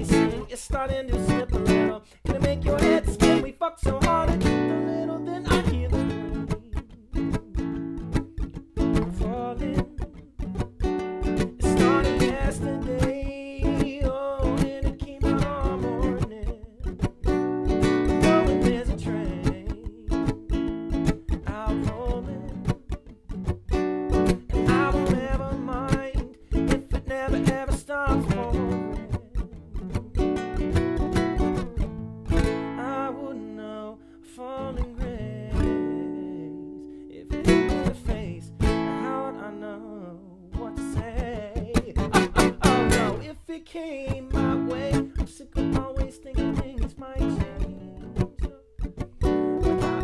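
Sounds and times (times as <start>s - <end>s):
wordless vocal: 0.0s - 7.7s, 32.8s - 48.5s
man singing: 0.0s - 23.1s, 24.2s - 31.6s, 32.6s - 50.0s
acoustic guitar strumming: 0.0s - 50.0s.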